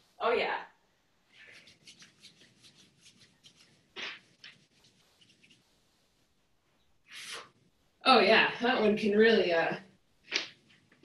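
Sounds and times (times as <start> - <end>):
clothing rustling: 1.3 - 6.3, 10.2 - 11.0
short puff: 7.1 - 7.6.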